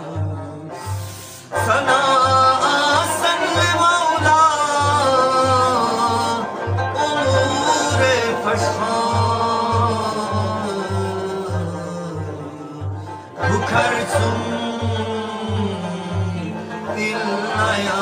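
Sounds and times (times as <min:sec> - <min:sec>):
lute melody: 0:00.0 - 0:18.0
person singing: 0:00.0 - 0:18.0.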